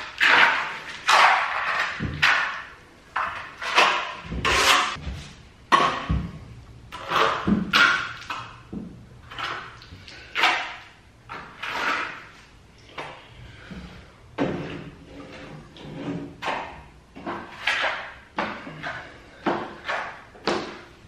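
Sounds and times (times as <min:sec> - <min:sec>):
trowel scraping wet plaster: 0:00.0 - 0:05.0, 0:06.9 - 0:08.5, 0:09.2 - 0:13.7, 0:14.4 - 0:20.8.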